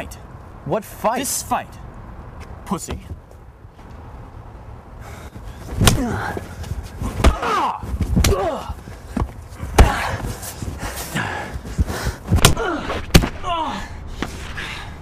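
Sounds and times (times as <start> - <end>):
blows smacking and thudding: 5.7 - 10.6, 11.6 - 13.5
men grunting and crying out: 5.8 - 15.0.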